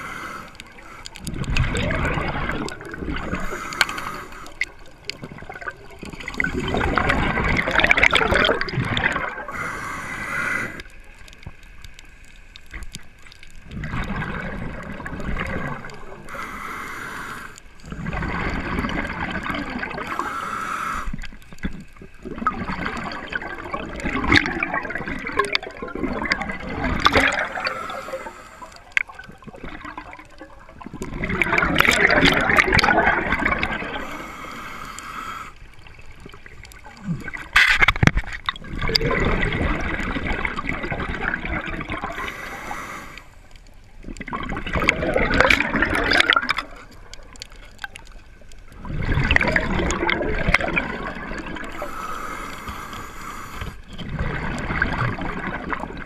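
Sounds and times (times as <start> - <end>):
hissing regulator inhalations: 0.0 - 1.3, 3.2 - 4.6, 9.5 - 11.0, 16.3 - 17.8, 20.0 - 21.4, 27.3 - 28.9, 33.9 - 35.8, 42.1 - 43.5, 51.7 - 53.9
exhaled bubbles gurgling: 0.0 - 56.0.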